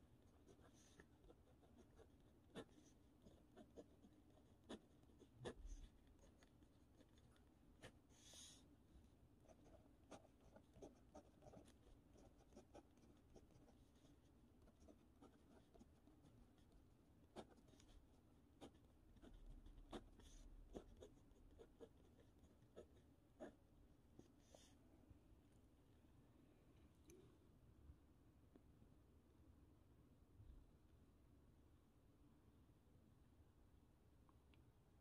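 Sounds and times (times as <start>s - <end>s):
pen scratching on paper: 0.0s - 8.6s, 9.4s - 23.6s.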